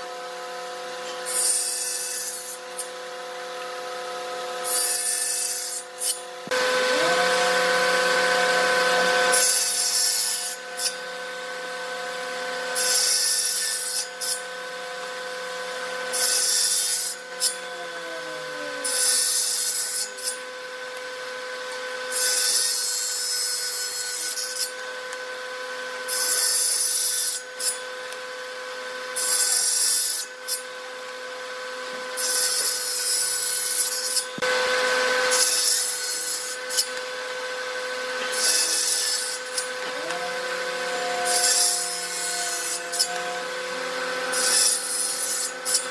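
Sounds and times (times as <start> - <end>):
table saw running: 0.0 - 45.9
saw cutting wood hiss: 4.6 - 11.6, 32.1 - 45.9
motor winding down: 6.0 - 12.9, 17.4 - 19.5, 36.4 - 45.9.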